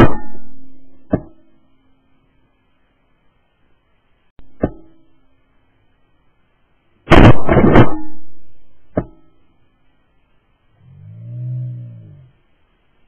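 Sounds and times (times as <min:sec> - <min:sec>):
shotgun shots echoing: 0:07.1 - 0:08.1.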